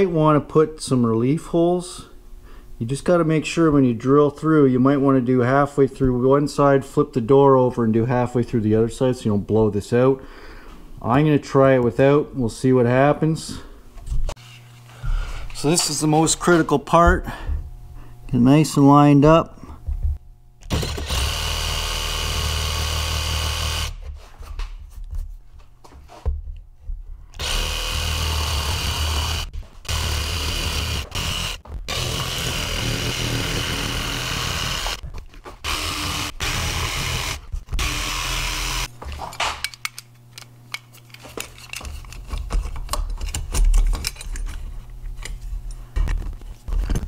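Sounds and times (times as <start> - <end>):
jigsaw cutting: 20.6 - 24.0, 27.4 - 35.0, 35.6 - 38.9.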